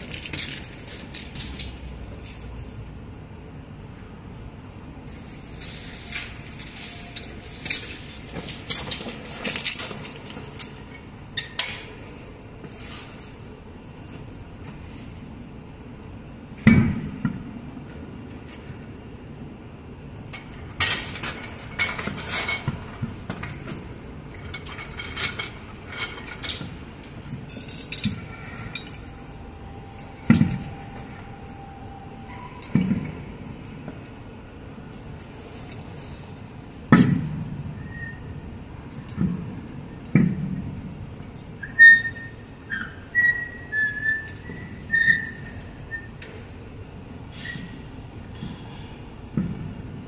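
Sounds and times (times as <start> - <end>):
metallic clinking and clattering: 0.0 - 2.8, 5.6 - 12.0, 20.4 - 34.2.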